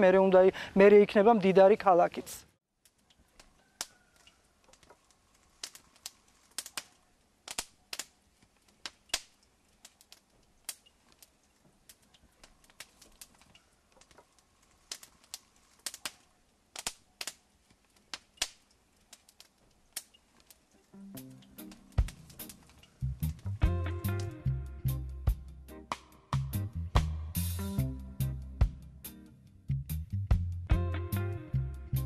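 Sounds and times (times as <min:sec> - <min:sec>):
faint sharp clicks and pops: 0:02.8 - 0:23.5.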